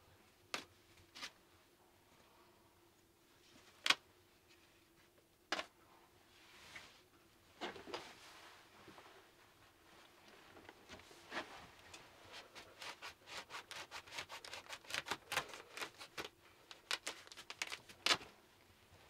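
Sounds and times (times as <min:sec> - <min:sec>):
close rustling and scratching: 0:07.9 - 0:18.3.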